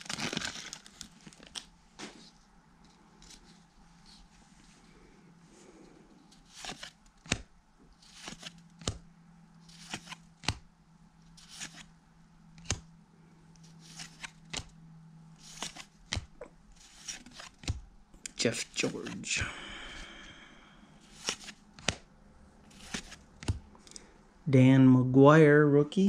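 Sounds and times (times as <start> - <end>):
trading cards flipping: 6.3 - 9.0, 9.6 - 10.6, 11.4 - 11.9, 12.6 - 12.8, 13.6 - 14.8, 15.4 - 19.3, 21.0 - 24.1.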